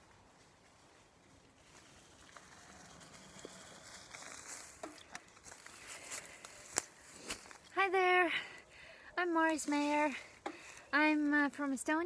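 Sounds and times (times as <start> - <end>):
bike tyres rolling over leaves: 0.0 - 7.7.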